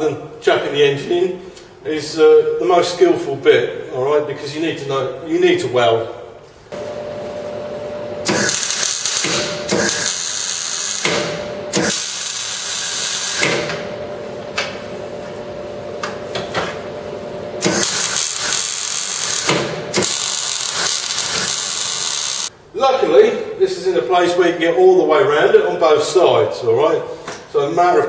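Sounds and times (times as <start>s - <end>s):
welding arc crackling: 8.2s - 13.7s, 17.6s - 22.5s.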